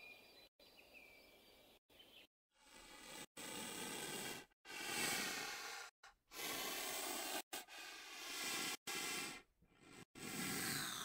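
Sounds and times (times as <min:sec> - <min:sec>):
rhinoceros breathing out: 0:02.6 - 0:11.0.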